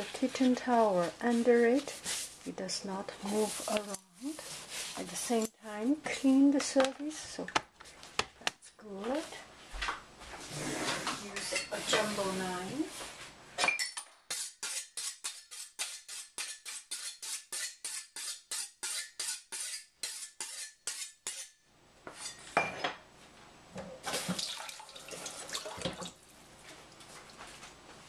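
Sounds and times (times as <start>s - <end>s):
running tap water: 24.1s - 26.2s.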